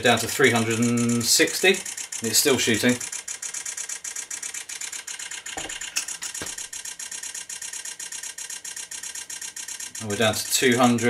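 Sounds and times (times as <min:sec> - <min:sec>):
camera shutter burst clicking: 0:00.6 - 0:10.2.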